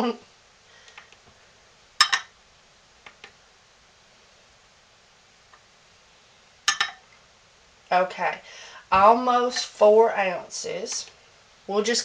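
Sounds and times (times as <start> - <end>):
glass clinking on hard surface: 2.0 - 2.3, 6.7 - 7.0.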